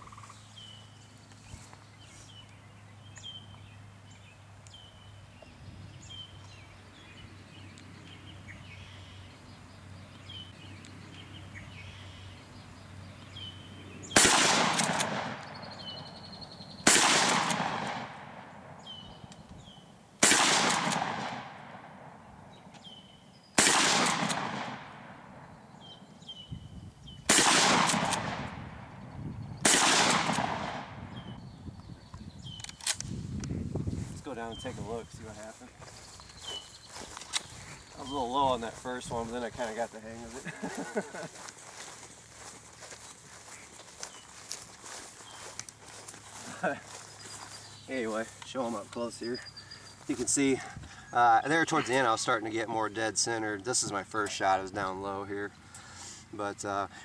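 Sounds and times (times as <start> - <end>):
birds chirping: 0.0 - 57.0
shotgun shots: 14.1 - 15.7, 16.8 - 18.8, 20.2 - 22.2, 23.6 - 25.4, 27.3 - 29.0, 29.6 - 31.0.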